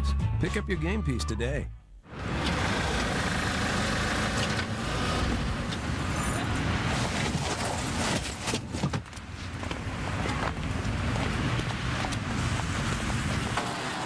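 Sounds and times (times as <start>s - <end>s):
cars passing at speed: 2.1s - 8.2s.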